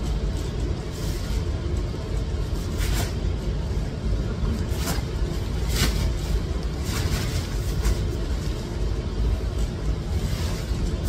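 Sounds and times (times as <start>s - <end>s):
nylon cover rustling: 4.6s - 11.0s.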